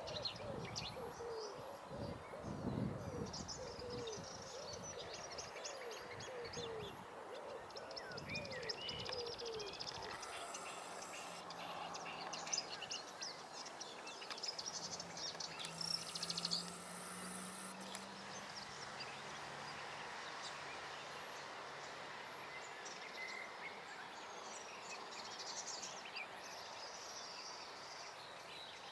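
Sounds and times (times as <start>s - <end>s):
background hiss: 8.7s - 28.9s
distant skylark singing: 8.9s - 19.0s.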